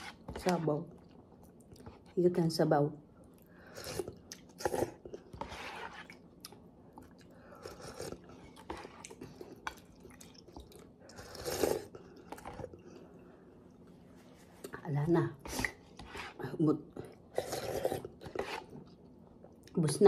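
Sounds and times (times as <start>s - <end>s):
person chewing: 3.2s - 13.8s
person slurping noodles: 11.1s - 12.0s, 17.3s - 18.7s.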